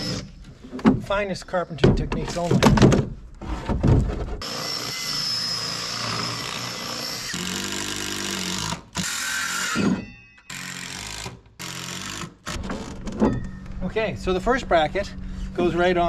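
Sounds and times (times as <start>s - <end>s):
cordless drill into wood: 0.0s - 0.3s, 4.4s - 12.6s.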